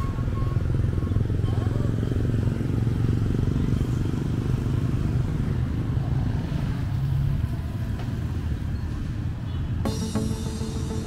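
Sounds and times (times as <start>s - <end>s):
motorcycle engines passing: 0.0s - 7.9s
background music: 9.8s - 11.0s.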